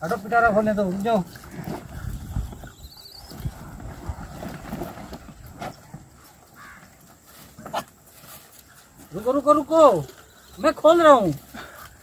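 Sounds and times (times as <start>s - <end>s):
plastic bag rustling and crinkling: 1.4s - 9.3s.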